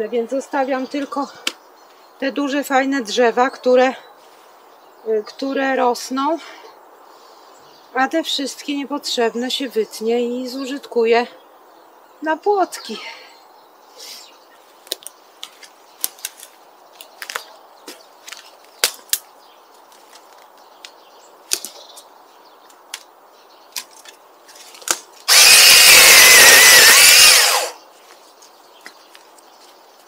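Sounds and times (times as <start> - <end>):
dry twigs cracking: 14.8 - 23.1, 23.7 - 27.8
power saw cutting branch: 24.8 - 27.8.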